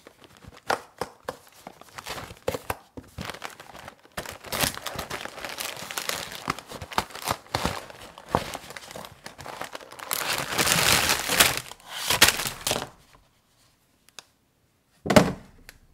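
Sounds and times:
plastic wrappers crinkling: 0:00.0 - 0:00.7, 0:01.4 - 0:13.2.

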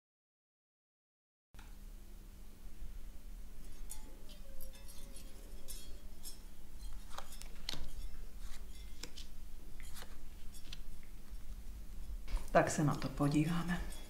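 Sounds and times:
cards being dealt clicking: 0:07.1 - 0:07.9, 0:08.5 - 0:10.9.

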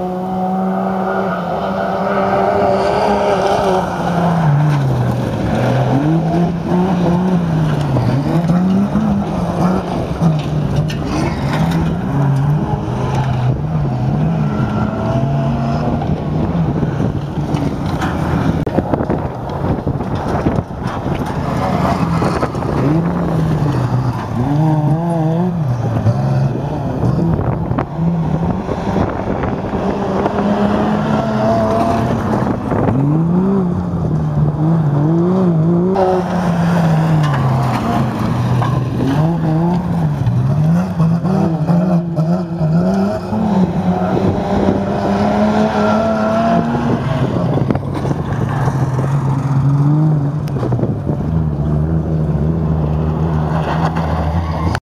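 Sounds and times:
truck engines revving: 0:00.0 - 0:54.8.

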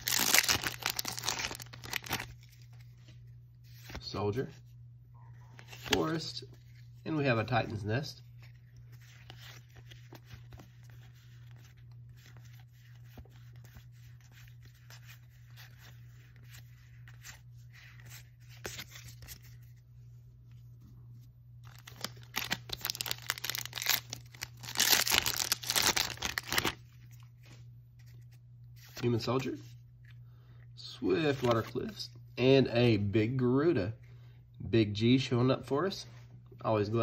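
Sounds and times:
foil wrapper crinkling and tearing: 0:00.0 - 0:02.4, 0:21.6 - 0:26.8
cards being shuffled: 0:00.0 - 0:04.2, 0:05.6 - 0:06.9, 0:07.7 - 0:19.8, 0:21.6 - 0:30.1, 0:31.2 - 0:32.0
low steady hum: 0:00.0 - 0:37.0.

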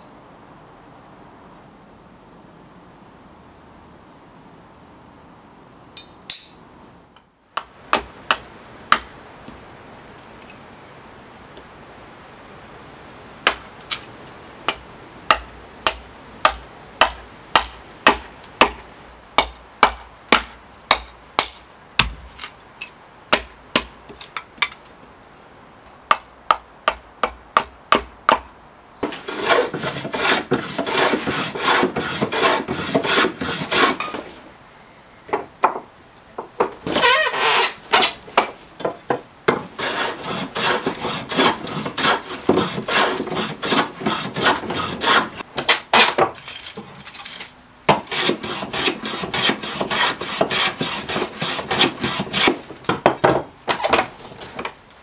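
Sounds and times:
hatchet chopping wood: 0:07.6 - 0:09.2, 0:13.5 - 0:14.1, 0:14.7 - 0:22.5, 0:23.3 - 0:24.8, 0:26.1 - 0:34.1, 0:37.9 - 0:46.4, 0:47.9 - 0:54.0
hand plane shaving wood: 0:29.0 - 0:34.1, 0:39.6 - 0:45.4, 0:48.0 - 0:52.7.

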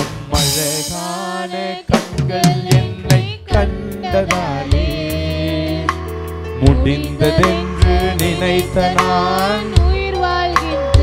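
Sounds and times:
drum hits: 0:00.0 - 0:01.2, 0:01.9 - 0:05.1
keyboard chord: 0:02.6 - 0:11.0.

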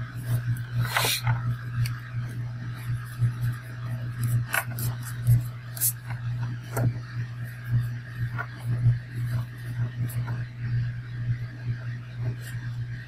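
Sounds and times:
low hum: 0:00.0 - 0:13.0
pen scratching on paper: 0:00.1 - 0:01.4, 0:02.2 - 0:10.4, 0:12.2 - 0:12.8.

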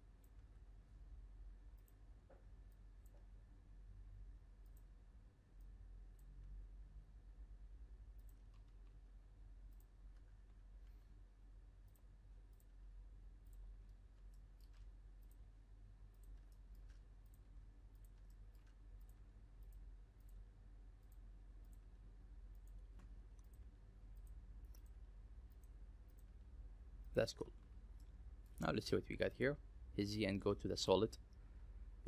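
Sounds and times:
low steady hum: 0:00.0 - 0:32.0
computer mouse clicks: 0:01.7 - 0:03.3, 0:04.6 - 0:04.9, 0:08.1 - 0:09.0, 0:09.7 - 0:11.1, 0:11.8 - 0:12.8, 0:13.4 - 0:15.5, 0:16.1 - 0:26.4.

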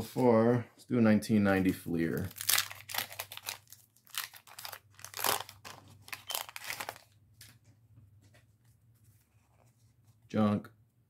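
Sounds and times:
paper wrapper tearing: 0:02.1 - 0:07.2.

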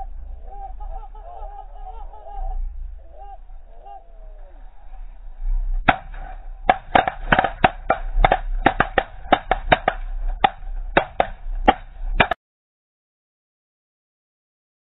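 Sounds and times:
sharp knocks: 0:05.8 - 0:12.4.

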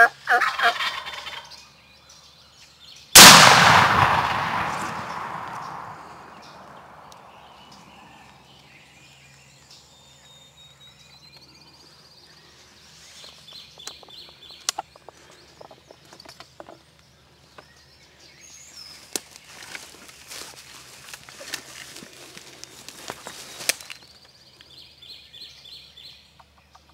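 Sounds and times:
birds chirping and trilling: 0:00.0 - 0:03.2, 0:04.8 - 0:26.9
shotgun blast echo: 0:03.2 - 0:07.4.

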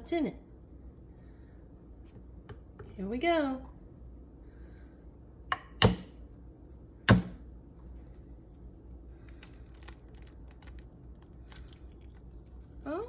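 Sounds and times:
eggshell crackling: 0:08.8 - 0:13.0.

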